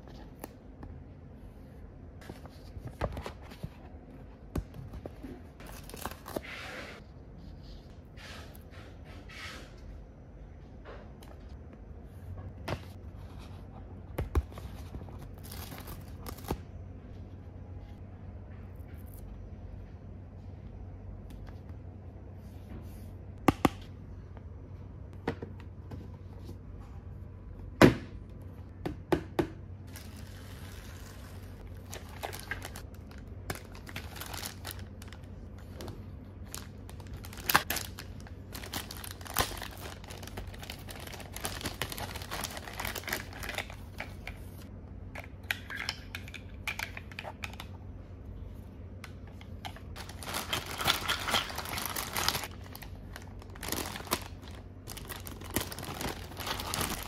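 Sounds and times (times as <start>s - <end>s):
plastic bag crinkling: 29.9s - 35.8s, 36.4s - 44.3s, 49.9s - 57.0s.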